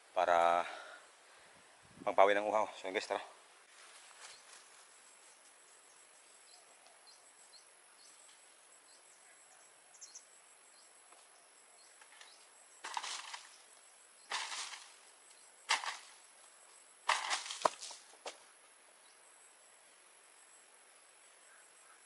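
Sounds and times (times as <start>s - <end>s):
palm fronds rustling and cracking: 3.7s - 4.9s, 11.9s - 18.4s.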